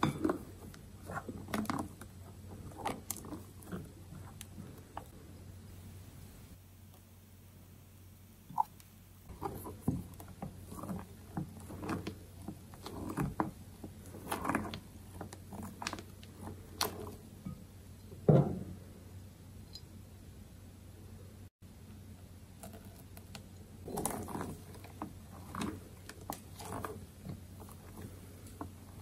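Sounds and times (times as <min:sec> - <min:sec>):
spatula stirring batter in glass bowl: 0:00.0 - 0:05.2, 0:08.5 - 0:18.4, 0:22.6 - 0:29.0.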